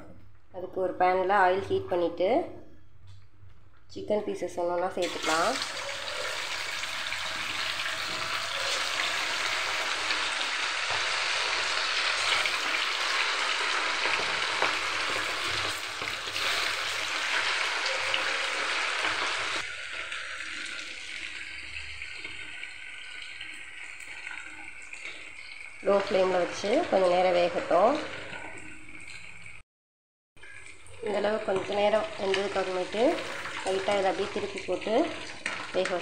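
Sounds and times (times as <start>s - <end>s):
chicken sizzling in hot oil: 5.0s - 27.0s.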